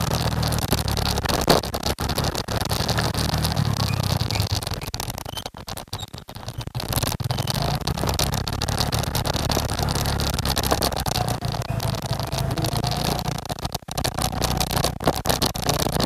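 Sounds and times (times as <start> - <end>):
motorcycle engine running: 7.7 - 15.0.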